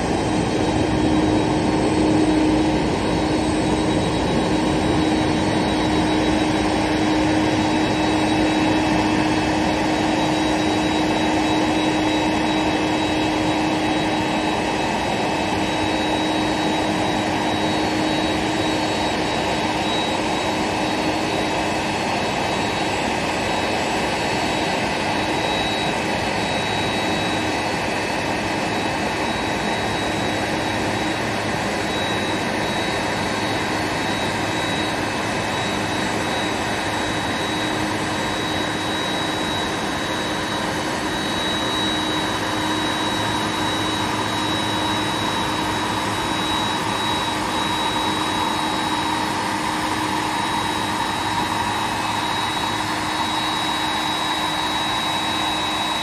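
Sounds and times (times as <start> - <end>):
jet turbines idling: 0.0 - 56.0.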